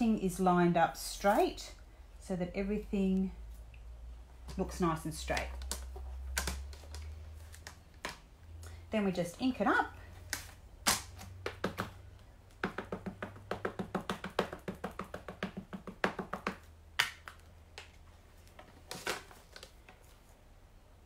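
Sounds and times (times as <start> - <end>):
ink pad tapping rubber stamp: 11.4 - 17.3.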